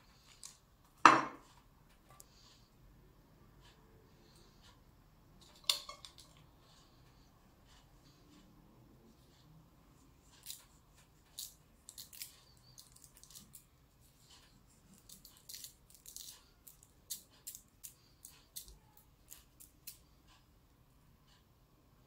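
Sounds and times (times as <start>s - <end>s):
salt grains ticking and crackling: 10.4s - 20.0s.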